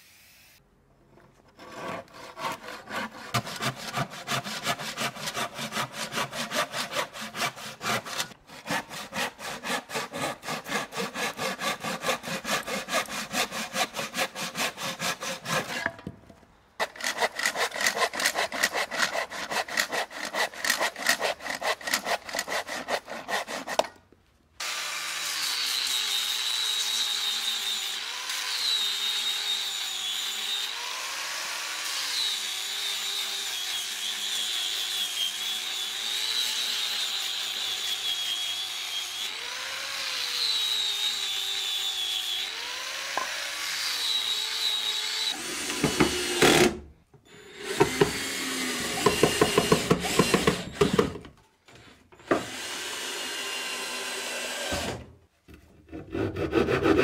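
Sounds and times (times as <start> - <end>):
hand saw cutting wood: 1.4 - 16.1, 16.8 - 24.0, 24.6 - 57.0
angle grinder sanding wood: 1.5 - 16.1, 16.8 - 23.9.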